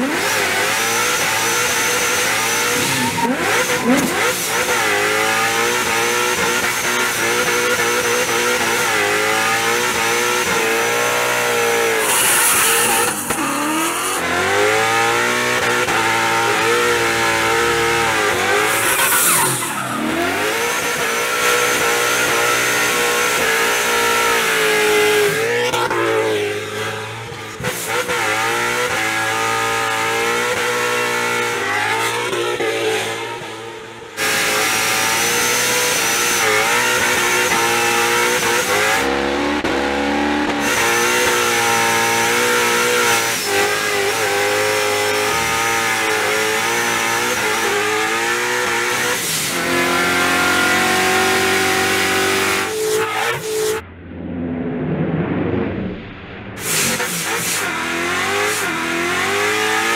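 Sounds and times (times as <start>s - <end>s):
car engine revving hard: 0.0s - 53.8s, 56.6s - 59.9s
tyre squeal: 1.2s - 9.1s, 16.5s - 25.1s.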